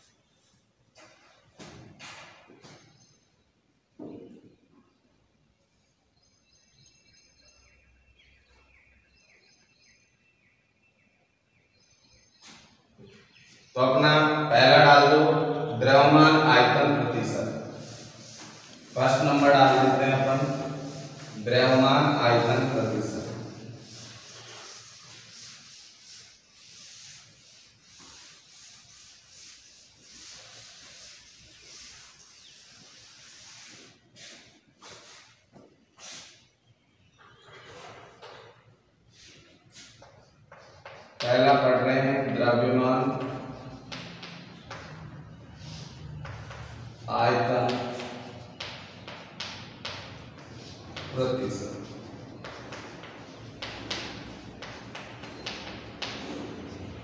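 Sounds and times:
duster rubbing on blackboard: 16.0s - 35.4s, 43.2s - 57.0s.

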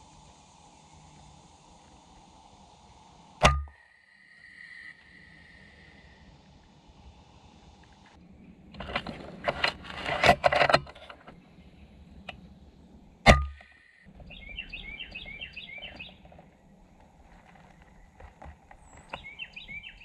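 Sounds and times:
bird chirping: 13.4s - 16.8s, 17.6s - 20.0s.

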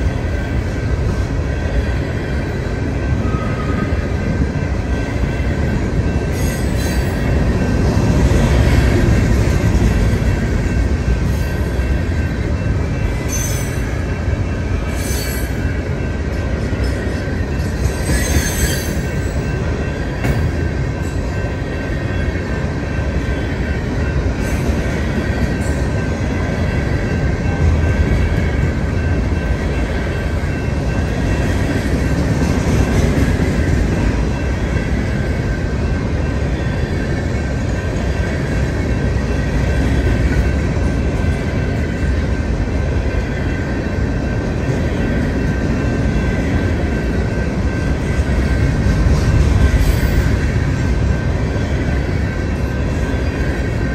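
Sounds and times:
train wheels rumbling on rail: 0.0s - 53.9s
high wheel squeals: 16.9s - 19.4s.

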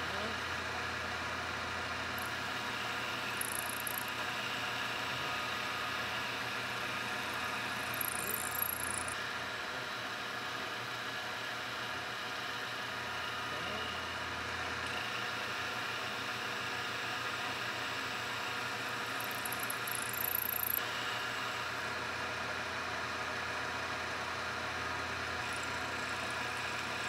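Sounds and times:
milling machine cutting metal: 1.7s - 9.2s, 13.0s - 21.6s, 24.4s - 27.0s.

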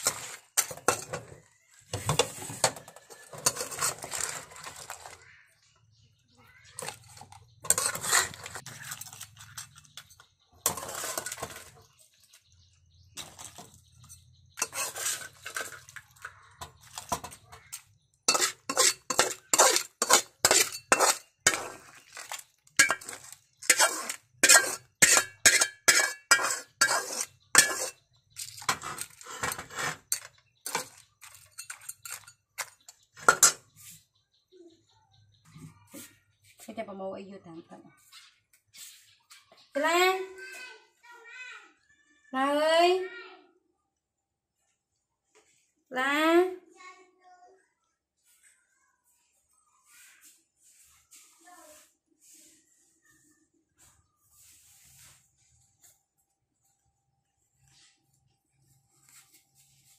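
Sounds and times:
metal utensil scraping cookware: 0.0s - 5.3s, 6.7s - 12.3s, 13.2s - 34.0s.

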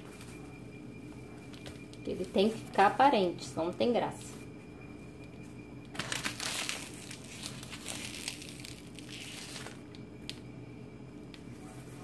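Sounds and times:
plastic bag crinkling: 5.9s - 10.0s.

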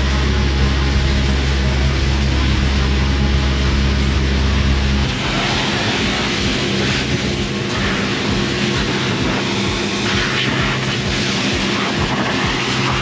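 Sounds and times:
pressure washer humming: 0.0s - 13.0s
water jet hissing: 4.9s - 13.0s.

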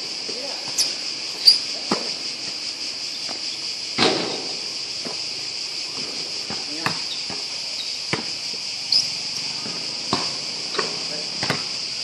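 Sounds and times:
cicadas buzzing: 0.0s - 12.0s
basketball bouncing on hard court: 6.4s - 7.5s, 8.1s - 8.4s, 9.6s - 11.7s.

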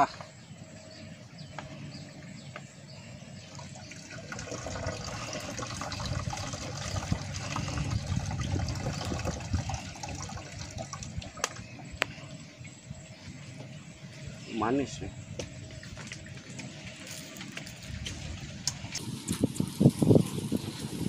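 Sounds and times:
liquid trickling into bottle: 3.5s - 11.7s.

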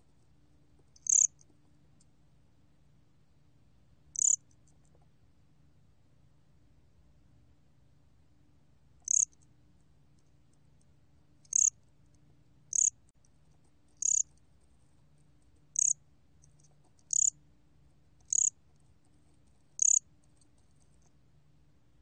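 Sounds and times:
faint low hum: 0.0s - 22.0s
cricket chirping: 0.9s - 1.5s, 4.1s - 4.5s, 9.0s - 9.4s, 11.4s - 11.8s, 12.7s - 13.0s, 14.0s - 14.4s, 15.7s - 16.0s, 17.0s - 17.4s, 18.2s - 18.6s, 19.8s - 20.1s.

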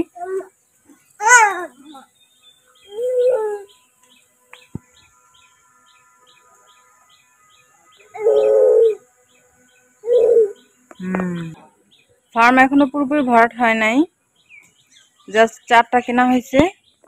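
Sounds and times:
small bird chirping: 0.0s - 17.0s
doves cooing: 2.8s - 3.7s, 7.9s - 9.1s, 10.0s - 11.7s.

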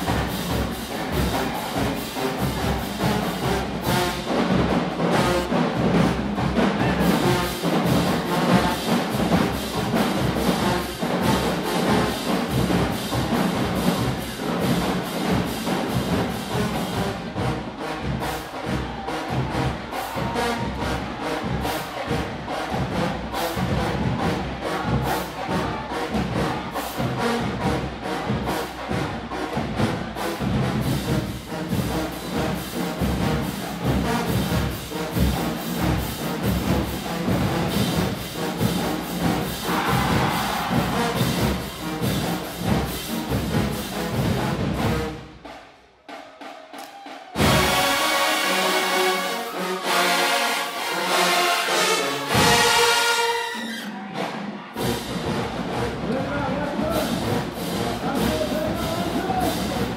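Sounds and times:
drums beating steadily: 0.0s - 50.1s, 50.8s - 59.9s
marching band brass: 0.0s - 59.9s.

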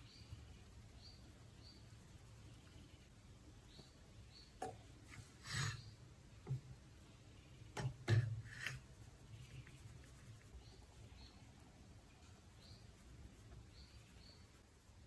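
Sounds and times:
flour rustling in sieve: 0.0s - 11.3s
scoop knocking on metal sieve: 7.7s - 8.7s.

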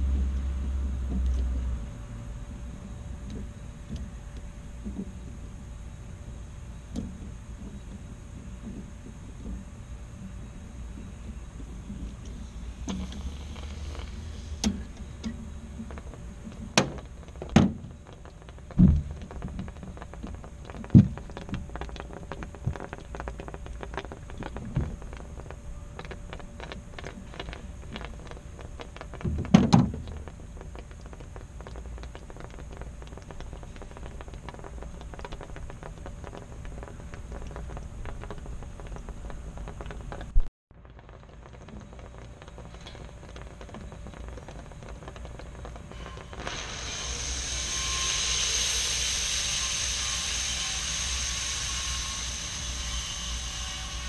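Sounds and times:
low hum: 0.0s - 54.0s
knocks and thunks: 18.8s - 19.7s.

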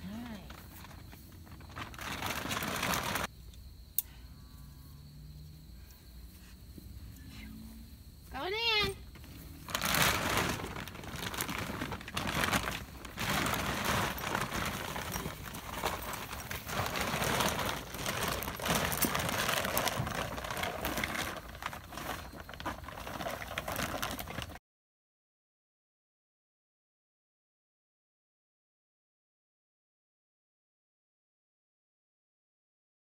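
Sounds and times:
plastic cover crinkling: 0.1s - 3.3s, 9.1s - 24.6s.

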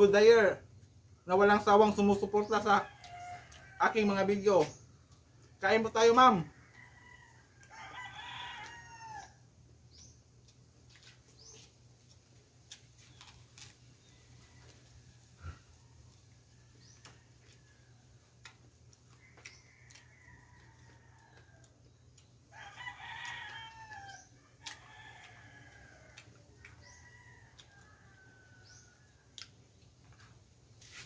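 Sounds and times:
rooster crowing: 2.8s - 4.1s, 6.4s - 9.4s, 19.2s - 21.7s, 22.5s - 29.2s.

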